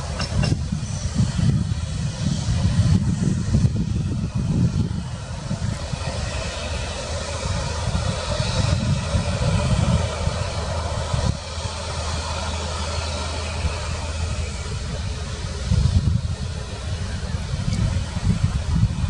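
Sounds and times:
jet engines running: 0:00.0 - 0:19.0.

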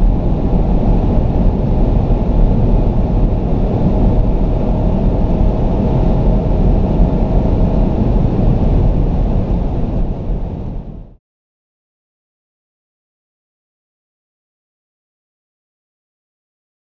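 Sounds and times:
road and wind noise in car: 0:00.0 - 0:11.2.

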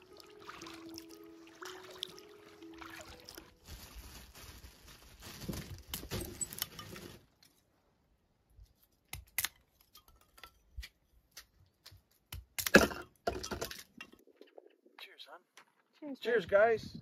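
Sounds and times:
water noise: 0:00.0 - 0:04.0
objects clattering: 0:05.2 - 0:07.5.

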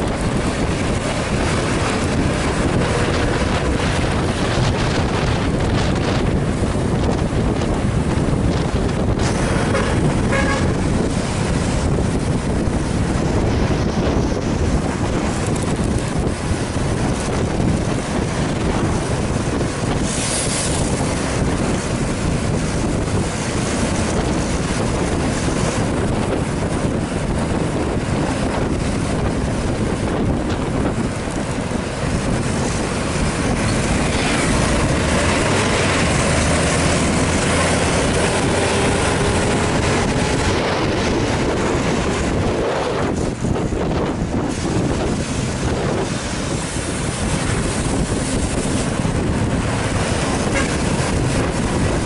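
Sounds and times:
vehicle road and engine noise: 0:00.0 - 0:52.0
wind buffeting microphone: 0:00.0 - 0:52.0.

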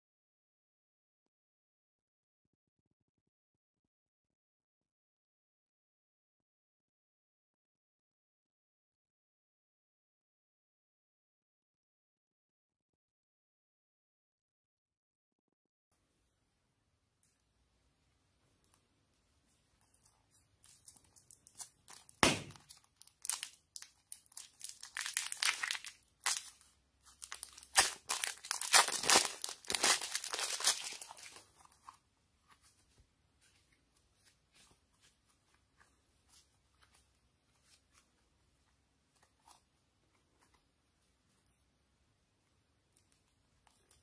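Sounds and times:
plastic bag crinkling and tearing: 0:20.6 - 0:31.7.

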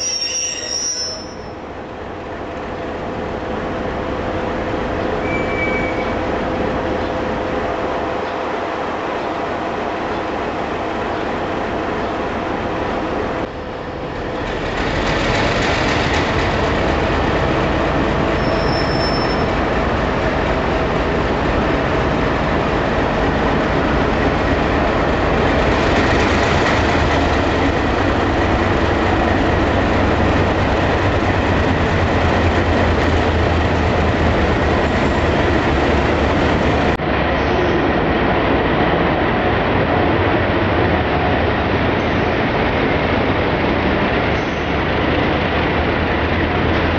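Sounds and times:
wheel squeal on rails: 0:00.0 - 0:01.6, 0:05.2 - 0:06.2, 0:18.4 - 0:19.6
diesel locomotive engine drone: 0:00.0 - 0:46.9.

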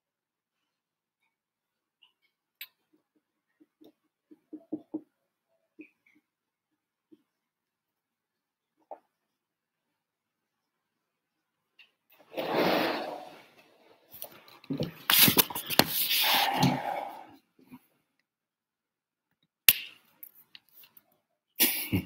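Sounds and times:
rustling and handling noise: 0:13.2 - 0:16.8.

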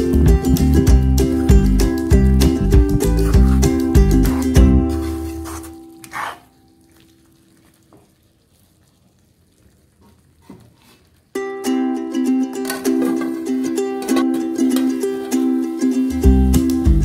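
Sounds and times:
background music: 0:00.0 - 0:06.0, 0:11.4 - 0:17.0
food sizzling in a pan: 0:04.3 - 0:11.3, 0:12.8 - 0:17.0.

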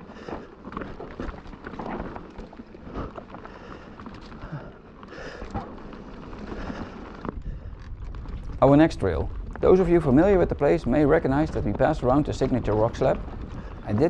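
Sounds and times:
tyres rolling over gravel: 0:00.0 - 0:14.0
bike knocks and rattles: 0:02.9 - 0:14.0
wind on microphone: 0:06.5 - 0:14.0.

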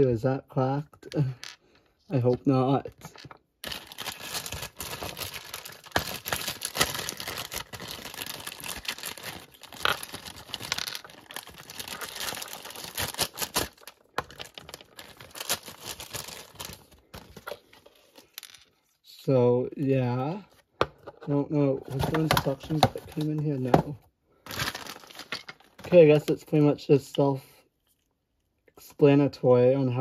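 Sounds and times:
plastic bag crinkling: 0:03.2 - 0:18.3, 0:24.4 - 0:26.3.

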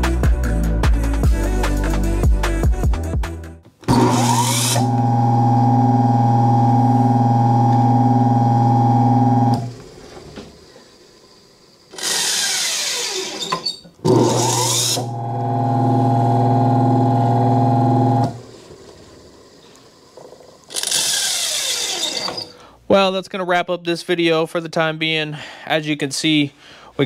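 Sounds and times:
electric motor humming: 0:03.9 - 0:09.9, 0:14.0 - 0:18.6
motor rushing up to speed: 0:14.1 - 0:18.5.

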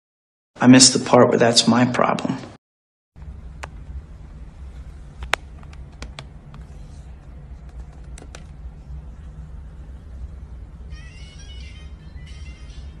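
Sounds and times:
low room noise rumble: 0:03.2 - 0:13.0.

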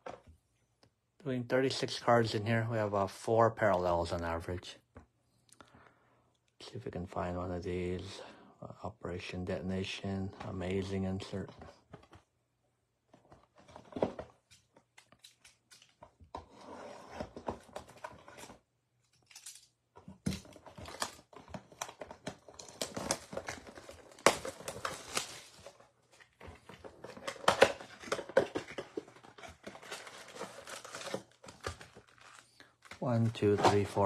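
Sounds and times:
cardboard tearing and scraping: 0:20.4 - 0:32.5.

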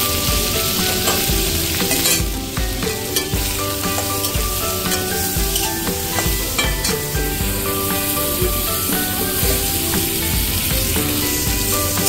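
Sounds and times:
background music with beat: 0:00.0 - 0:12.0
food sizzling in hot oil: 0:00.0 - 0:12.0
metal spatula scraping pan: 0:00.1 - 0:02.3.

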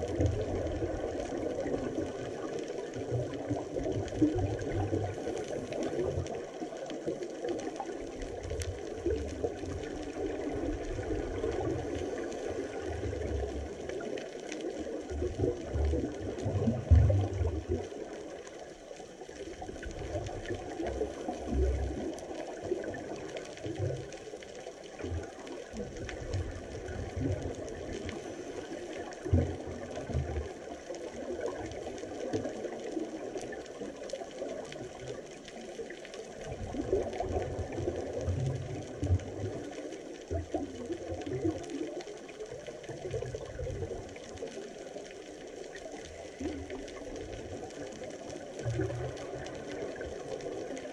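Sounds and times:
muffled underwater hiss: 0:00.0 - 0:50.9
low thumps of water: 0:19.6 - 0:35.1.

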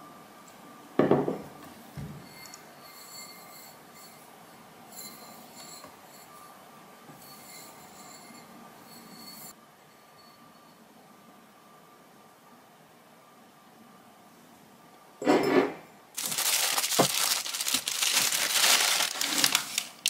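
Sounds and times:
ceramic cup knocking on table: 0:01.0 - 0:02.2.

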